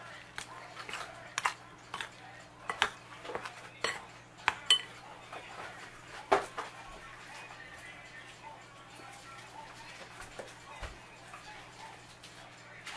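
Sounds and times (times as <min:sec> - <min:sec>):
spoon clinking in glass bowl: 0:03.8 - 0:05.0.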